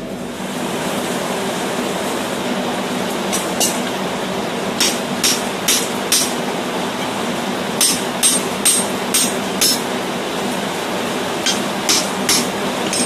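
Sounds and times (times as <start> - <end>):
hammer striking steel punch: 4.8 - 6.4, 7.8 - 9.8, 11.4 - 13.0.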